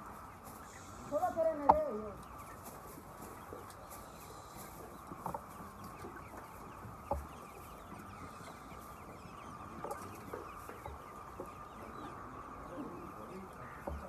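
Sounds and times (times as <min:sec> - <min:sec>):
chickens clucking: 0:00.0 - 0:14.0
loud chicken calls: 0:00.0 - 0:14.0.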